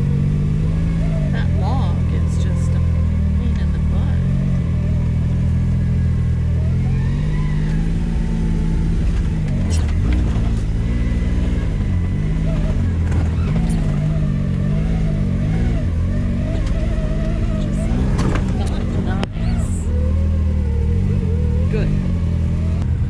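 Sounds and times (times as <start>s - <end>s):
off-road vehicle engine revving: 0.0s - 23.0s.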